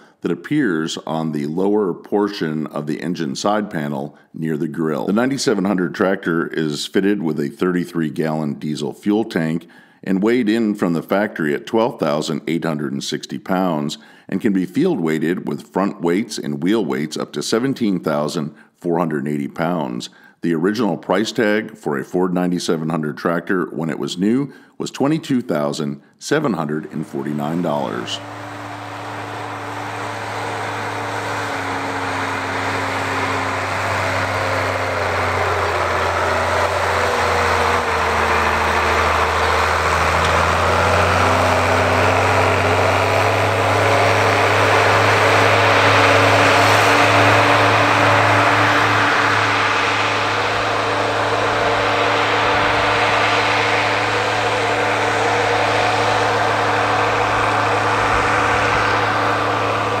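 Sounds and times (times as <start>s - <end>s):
tractor diesel engine running: 26.8s - 60.0s.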